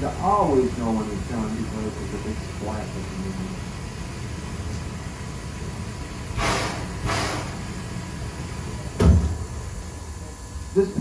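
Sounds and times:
heavy thump: 9.0s - 9.4s.

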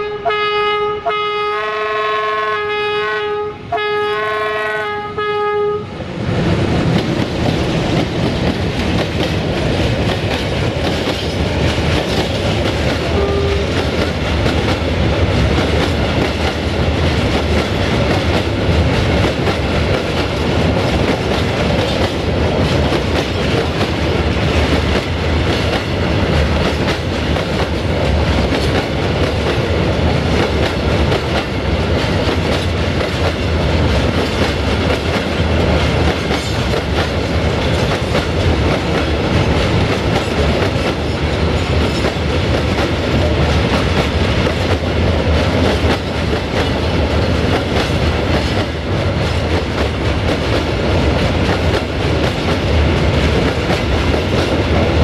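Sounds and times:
locomotive horn blasts: 0.0s - 6.0s, 13.1s - 13.8s
train wheels on rails: 0.0s - 55.0s.

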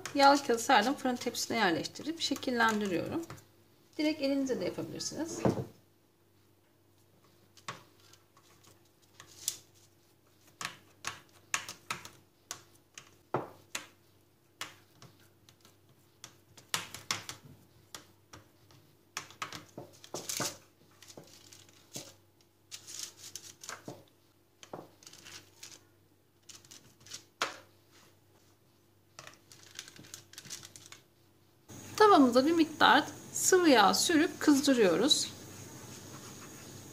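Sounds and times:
paper crinkling: 19.9s - 23.9s, 24.9s - 27.3s, 29.2s - 31.1s.

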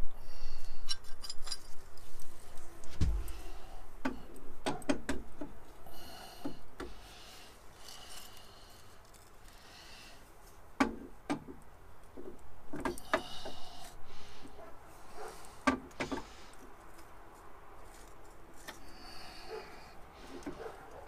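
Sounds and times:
metal parts clinking and knocking: 0.9s - 2.0s.

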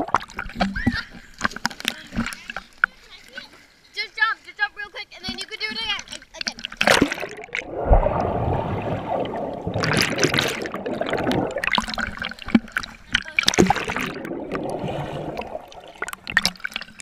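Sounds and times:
water splashing: 0.0s - 17.0s
muffled underwater churning water: 5.2s - 17.0s.

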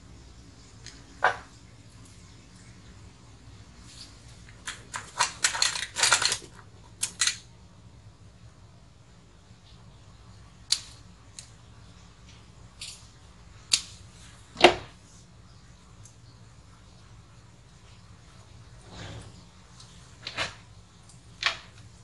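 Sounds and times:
scratchy clicks and rustles: 3.8s - 7.4s.

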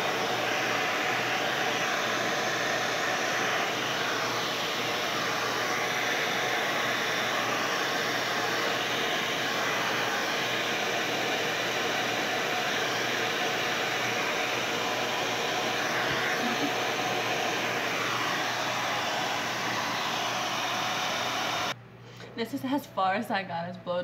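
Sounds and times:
hair dryer blowing air: 0.0s - 21.8s.

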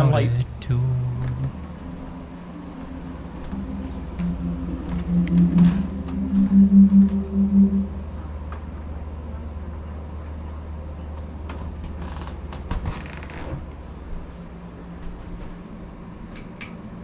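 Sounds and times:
low hum: 0.0s - 9.0s
short pulsing tone: 0.8s - 8.9s.

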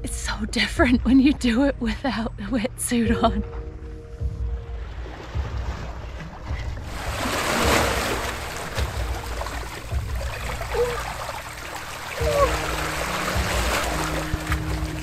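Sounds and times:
waves splashing over rocks: 6.8s - 15.0s.

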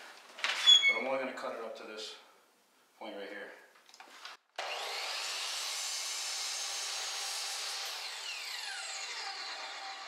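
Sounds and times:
miter saw cutting wood: 4.6s - 10.0s
saw blade winding down whine: 4.6s - 10.0s.

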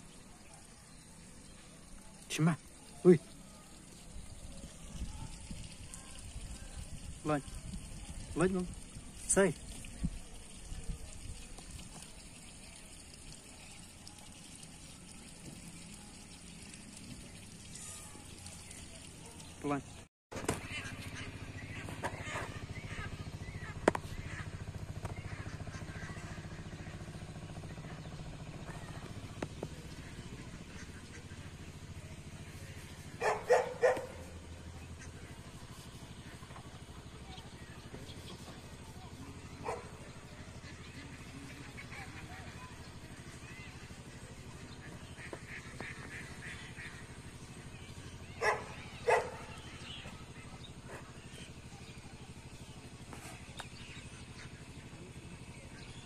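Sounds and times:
small engine idling: 0.0s - 56.0s
loud animal calls: 20.6s - 27.6s.

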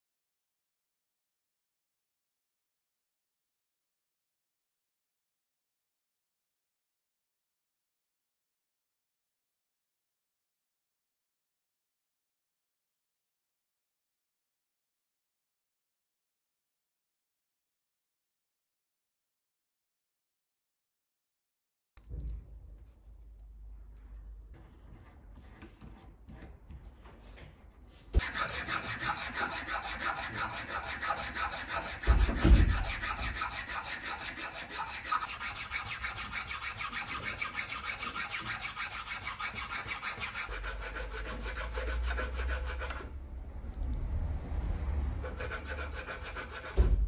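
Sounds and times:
metal file rasping on plastic: 24.3s - 43.1s, 45.2s - 46.9s
low thump: 32.1s - 32.9s, 46.8s - 47.0s.

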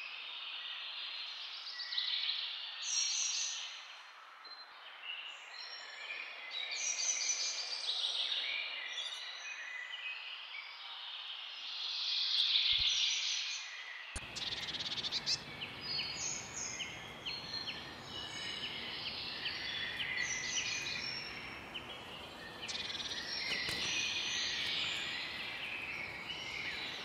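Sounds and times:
background hiss: 14.2s - 27.0s
bird buzzy trill: 14.2s - 27.0s
small birds chirping: 14.2s - 27.0s.

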